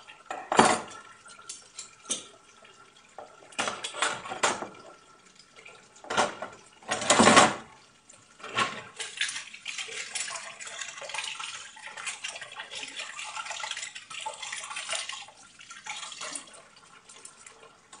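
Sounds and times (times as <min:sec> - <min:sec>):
crockery and cutlery clattering: 0:00.3 - 0:02.3, 0:03.6 - 0:04.7, 0:06.1 - 0:07.7
glasses and utensils clinking: 0:00.3 - 0:02.3.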